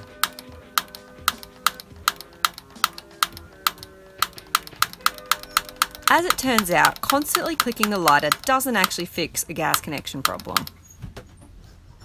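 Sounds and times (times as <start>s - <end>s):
lighter igniter clicking: 0.1s - 9.0s.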